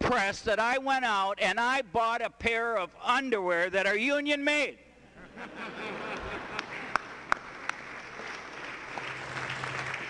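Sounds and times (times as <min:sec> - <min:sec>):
crowd laughing and clapping: 0:05.2 - 0:10.0.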